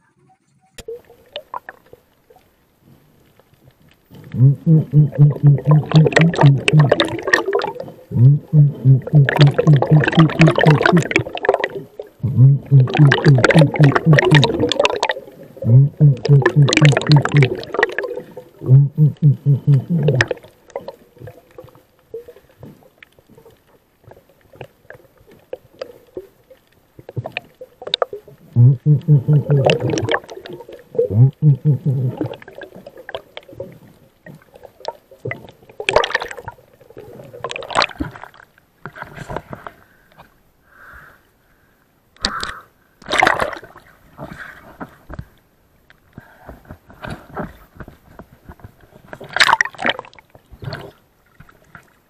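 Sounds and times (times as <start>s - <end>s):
water splashing: 0.8s - 39.7s, 43.0s - 44.8s, 47.0s - 52.0s
underwater clicks and knocks: 3.4s - 11.7s, 12.3s - 21.8s, 44.8s - 51.9s
low muffled rumbling: 12.2s - 14.4s.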